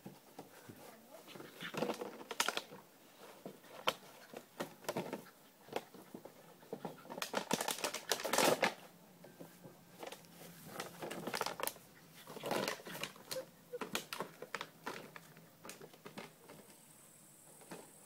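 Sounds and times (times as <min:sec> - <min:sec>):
plastic bottle crackling in dog's jaws: 0:01.7 - 0:02.8, 0:07.2 - 0:08.8, 0:10.8 - 0:11.8, 0:12.4 - 0:16.3.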